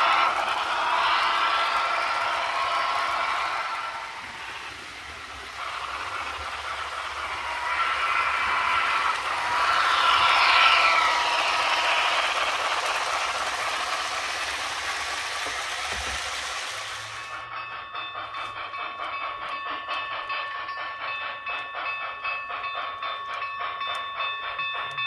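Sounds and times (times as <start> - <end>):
steam hiss: 0.0 - 17.5
model locomotive chuffing: 0.0 - 25.0.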